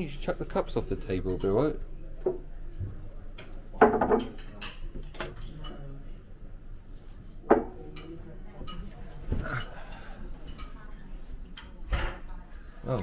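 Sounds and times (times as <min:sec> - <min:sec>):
cups and crockery clinking: 0:01.0 - 0:06.0, 0:07.4 - 0:12.5.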